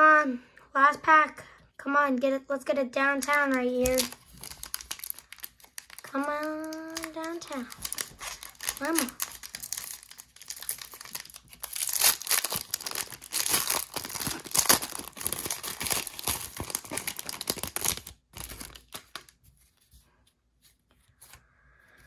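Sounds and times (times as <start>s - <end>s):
foil wrapper tearing and crinkling: 3.3s - 19.4s.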